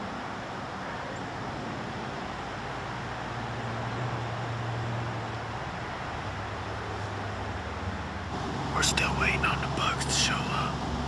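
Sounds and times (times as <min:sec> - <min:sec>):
distant motor vehicle drone: 0:00.0 - 0:11.0
background hiss: 0:08.3 - 0:11.0.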